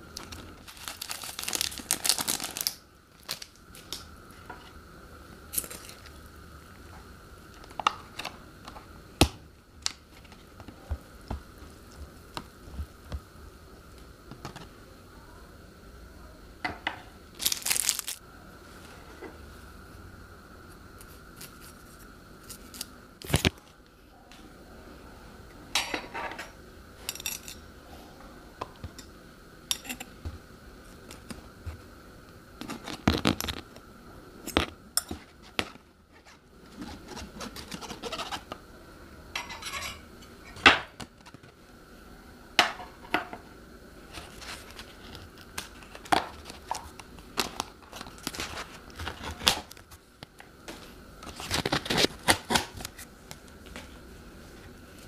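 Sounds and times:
packets crinkling and tearing: 0.2 - 4.1, 17.4 - 18.2, 44.2 - 49.9, 51.3 - 53.1.

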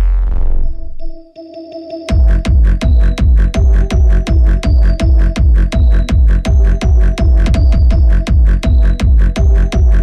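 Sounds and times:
heavy kick drum beat: 2.1 - 10.0.

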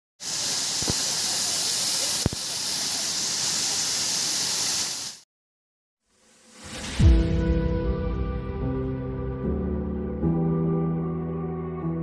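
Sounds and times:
waterfall rushing: 0.2 - 5.1.

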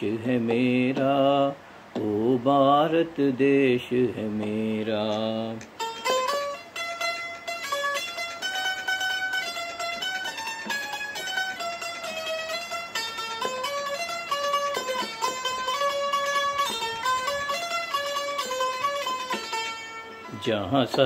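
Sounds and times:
plucked keyed banjo melody: 0.0 - 21.0.

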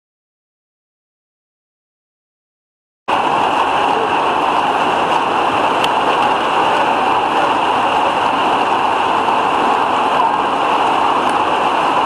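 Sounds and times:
heavy rain falling: 3.1 - 12.0.

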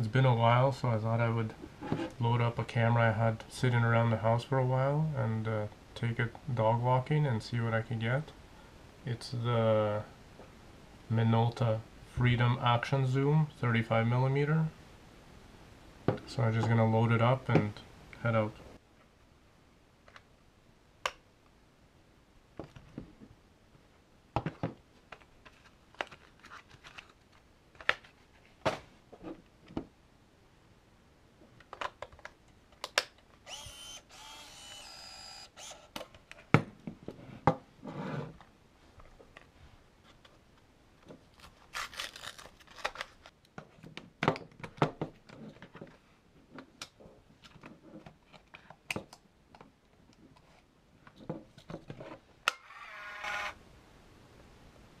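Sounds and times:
camera motor whirring: 33.5 - 36.0, 52.6 - 53.6.

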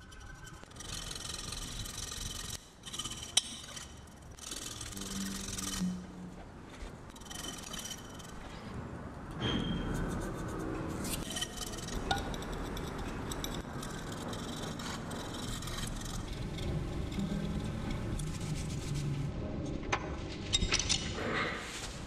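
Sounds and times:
tool scraping ceramic bowl: 0.0 - 6.1, 7.1 - 8.7, 9.4 - 19.2.

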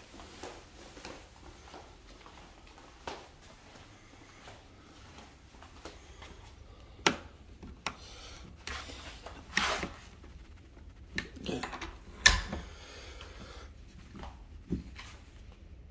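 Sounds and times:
rubbing and scuffing: 7.5 - 12.1, 13.2 - 15.6.

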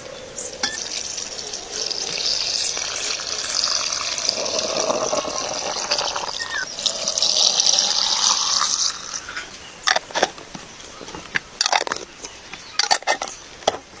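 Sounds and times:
liquid pouring into a jar: 0.7 - 9.3.

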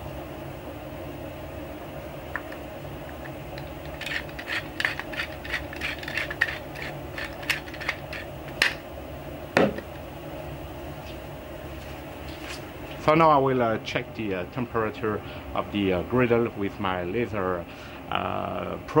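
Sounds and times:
steady low hum: 0.0 - 19.0
spice mill grinding clicks: 2.4 - 8.8.

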